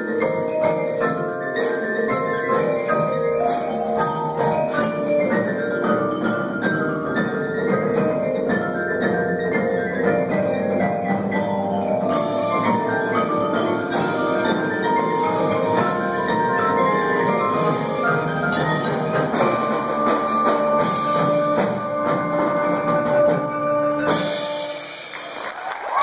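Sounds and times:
percussion ensemble playing: 0.0s - 26.0s
crowd clapping and cheering: 25.0s - 26.0s.

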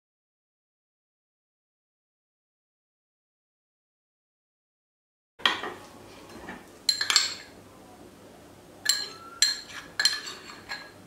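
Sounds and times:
metal spoon clinking ceramic bowl: 6.9s - 7.5s, 8.8s - 11.0s.

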